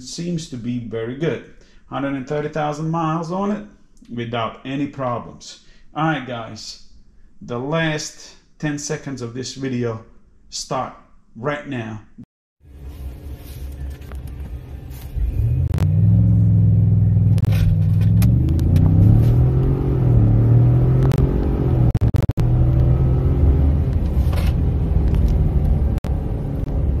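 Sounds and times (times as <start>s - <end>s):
truck engine revving and accelerating: 15.2s - 27.0s.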